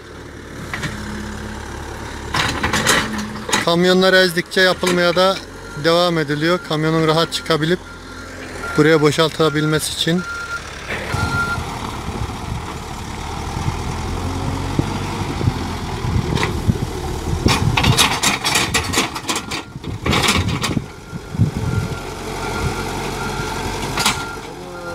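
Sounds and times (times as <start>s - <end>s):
diesel engine under load: 0.0s - 24.9s
clattering and scraping: 2.1s - 4.0s, 17.4s - 21.0s
reversing alarm beeps: 5.6s - 11.6s, 20.9s - 24.9s.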